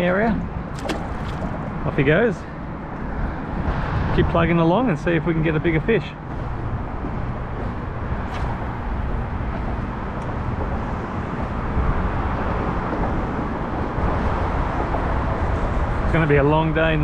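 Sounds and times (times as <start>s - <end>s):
boat engine hum: 0.0s - 17.0s
water rushing: 0.6s - 2.2s.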